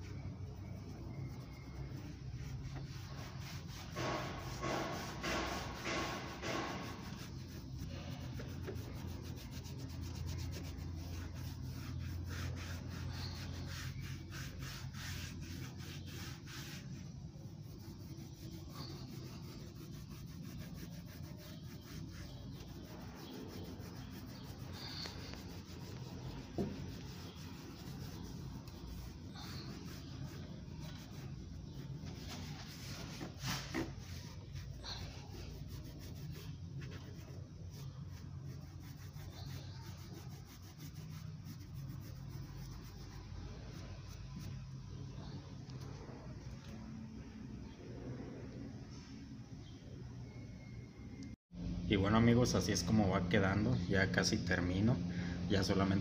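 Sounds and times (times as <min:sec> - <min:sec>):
pad rubbing on plastic: 0:00.0 - 0:44.6.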